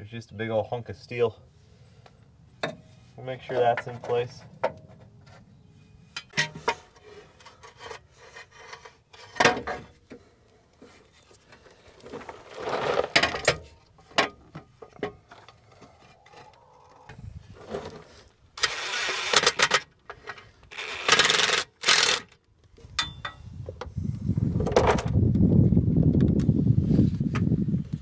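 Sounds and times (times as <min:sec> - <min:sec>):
metal scraping and rattling: 0:06.1 - 0:10.0.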